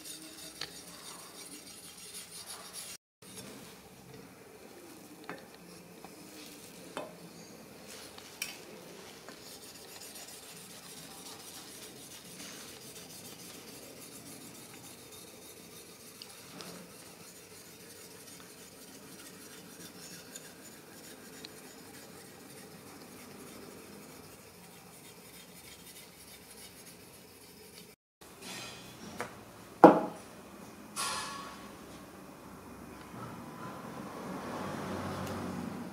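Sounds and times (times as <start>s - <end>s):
blade scraping on sharpening stone: 0.0s - 3.5s, 9.4s - 23.3s.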